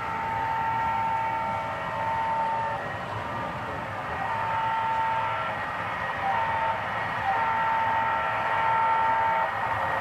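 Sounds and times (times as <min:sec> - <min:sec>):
model train air horn: 0:00.0 - 0:10.0
steady running hiss: 0:00.0 - 0:10.0.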